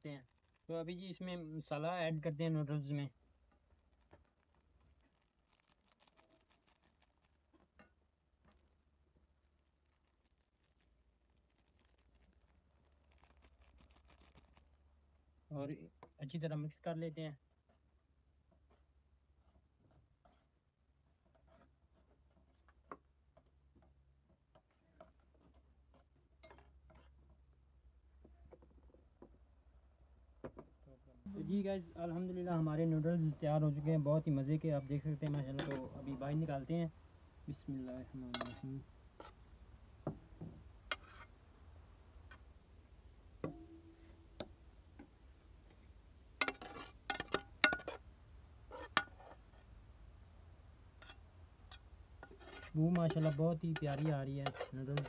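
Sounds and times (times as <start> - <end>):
low steady hum: 30.8 - 48.8
spoon clinking on metal pot: 46.4 - 48.0.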